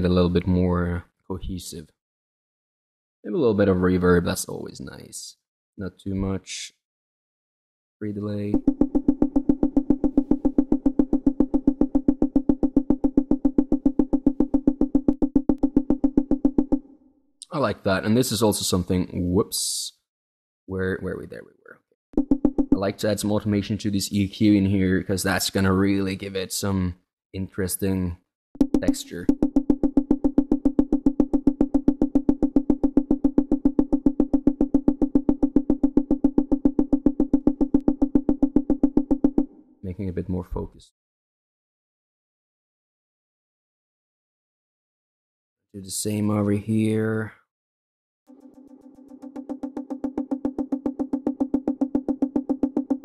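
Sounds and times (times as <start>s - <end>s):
synthesizer pluck staccato pulses: 8.5s - 16.9s, 22.2s - 23.6s, 28.6s - 39.6s, 49.3s - 53.0s.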